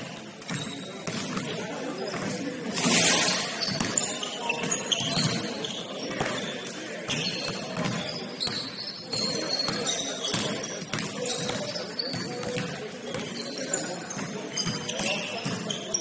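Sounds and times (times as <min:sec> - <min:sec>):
sneakers squeaking: 0:00.0 - 0:16.0
basketball bouncing: 0:00.4 - 0:02.3, 0:07.5 - 0:08.7, 0:09.6 - 0:13.3, 0:14.2 - 0:15.6.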